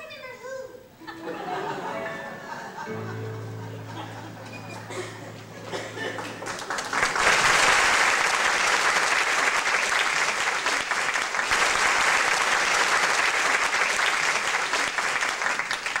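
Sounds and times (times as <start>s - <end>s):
audience applauding: 4.2s - 16.0s.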